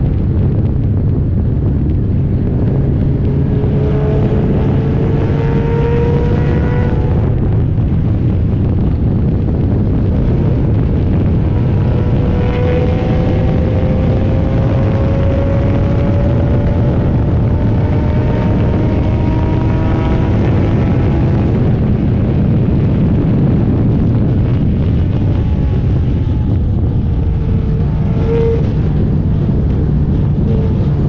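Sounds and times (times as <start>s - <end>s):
wind rushing: 0.0s - 31.0s
race car engine accelerating: 2.1s - 7.8s, 10.2s - 22.0s, 24.5s - 31.0s.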